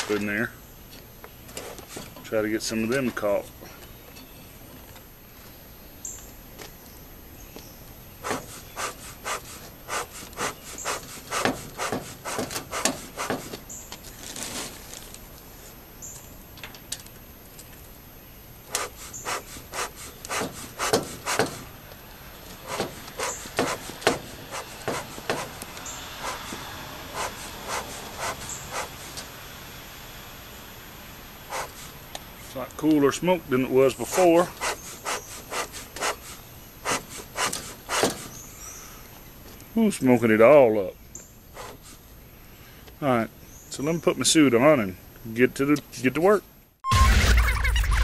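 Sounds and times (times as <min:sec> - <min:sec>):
bellows puffing air: 0:08.2 - 0:13.6, 0:18.7 - 0:21.8, 0:22.4 - 0:29.4, 0:31.4 - 0:32.5, 0:34.0 - 0:38.4, 0:41.5 - 0:42.0.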